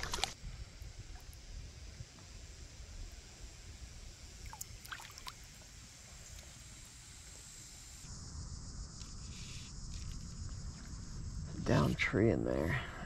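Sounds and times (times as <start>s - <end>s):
low wind rumble: 0.2s - 4.5s, 8.1s - 13.0s
faint water splashes: 4.4s - 5.6s.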